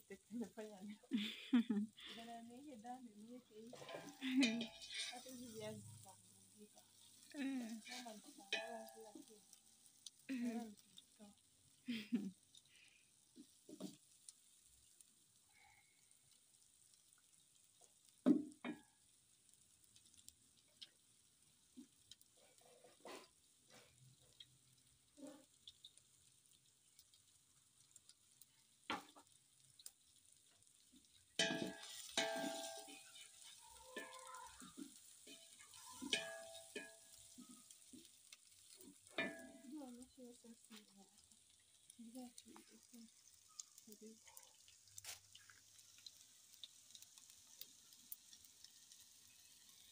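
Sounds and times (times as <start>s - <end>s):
faint sizzling: 0.0s - 49.9s
wooden spoon stirring in pot: 2.0s - 18.9s, 19.8s - 49.9s
wooden spoon knocking metal pot: 8.4s - 9.1s, 31.4s - 33.1s, 36.0s - 37.1s, 39.1s - 39.7s
spoon knocking against pot: 31.4s - 33.0s.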